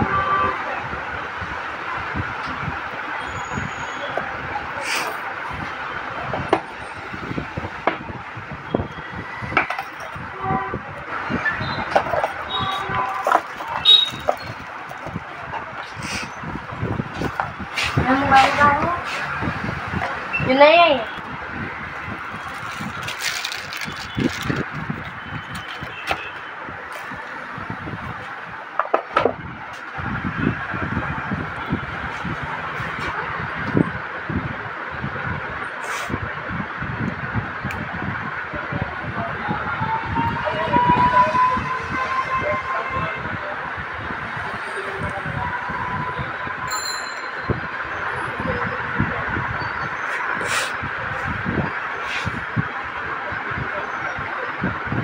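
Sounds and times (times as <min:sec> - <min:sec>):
plastic bag crinkling: 0:22.2 - 0:25.9.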